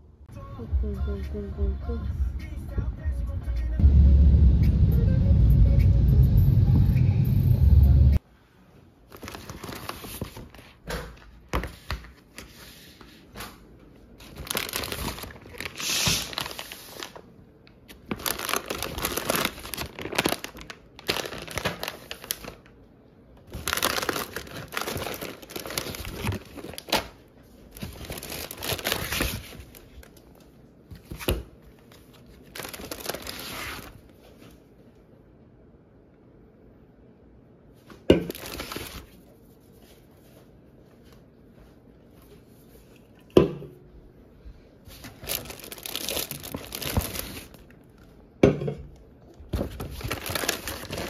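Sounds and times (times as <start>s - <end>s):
plastic packaging crinkling: 9.1s - 10.8s, 14.2s - 22.7s, 23.5s - 30.4s, 31.8s - 34.4s, 38.3s - 39.2s, 44.9s - 48.1s, 49.5s - 51.0s.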